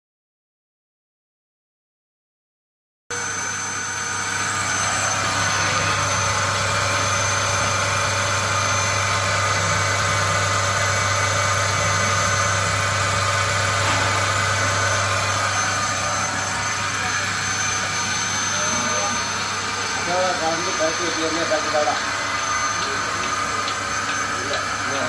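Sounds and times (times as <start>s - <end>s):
vacuum pump humming: 3.1s - 25.0s.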